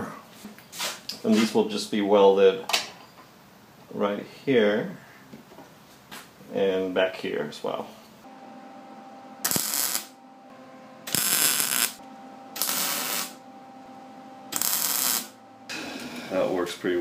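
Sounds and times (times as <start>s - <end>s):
faint steady hum: 7.7s - 17.0s
welder arc bursts: 9.4s - 10.2s, 11.0s - 12.0s, 12.6s - 13.4s, 14.5s - 16.4s.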